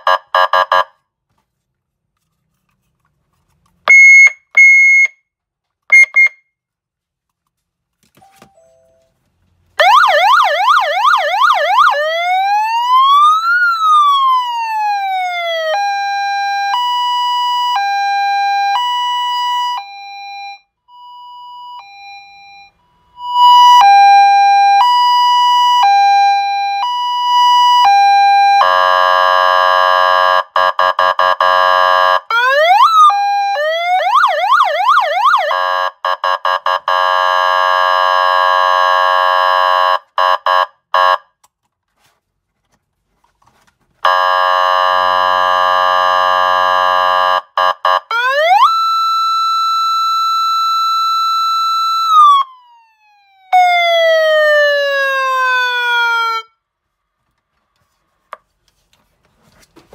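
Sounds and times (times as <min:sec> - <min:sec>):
electronic police siren: 0:09.8 - 0:30.1, 0:31.0 - 0:41.2, 0:44.1 - 0:56.6.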